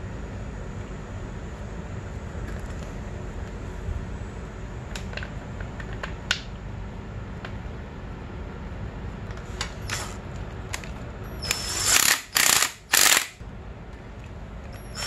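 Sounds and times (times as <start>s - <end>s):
cordless drill driving bolt: 11.4s - 13.4s.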